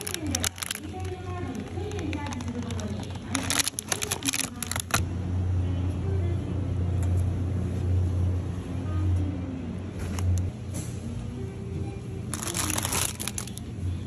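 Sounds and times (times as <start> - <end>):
plastic packaging clicking: 0.0 - 5.0, 12.3 - 13.6.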